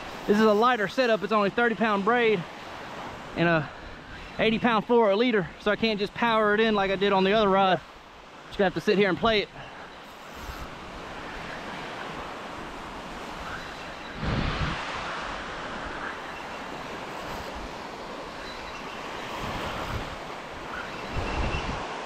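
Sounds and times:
surf washing onto beach: 0:00.0 - 0:22.0
wind buffeting microphone: 0:10.4 - 0:22.0.

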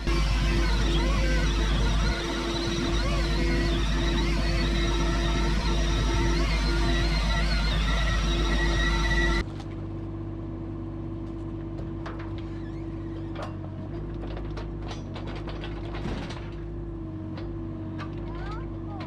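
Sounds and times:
excavator diesel engine running: 0:00.0 - 0:12.4
clicks and squeaks: 0:12.1 - 0:16.6.

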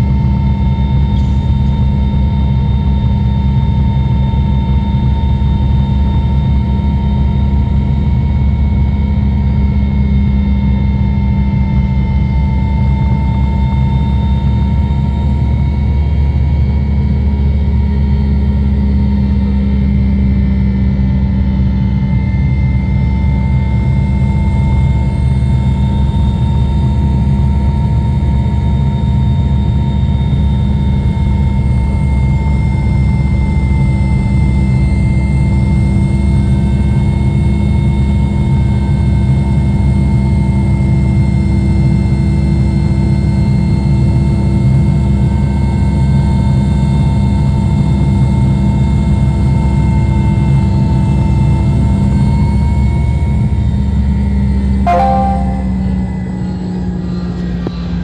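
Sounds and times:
high-pitched engine whine: 0:00.0 - 0:34.0
helicopter low drone: 0:00.0 - 0:35.0.

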